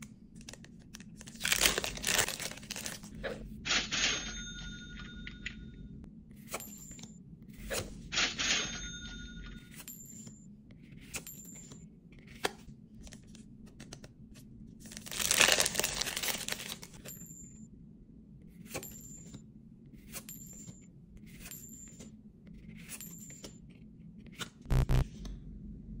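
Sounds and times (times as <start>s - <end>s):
foil pack tearing open: 1.2s - 3.1s, 14.9s - 16.9s.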